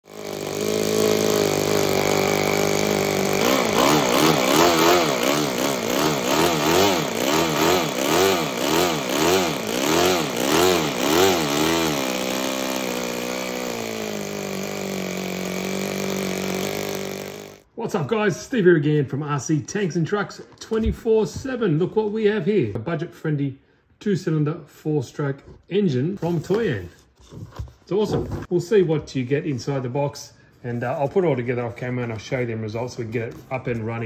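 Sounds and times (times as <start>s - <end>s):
model engine revving: 0.0s - 17.7s.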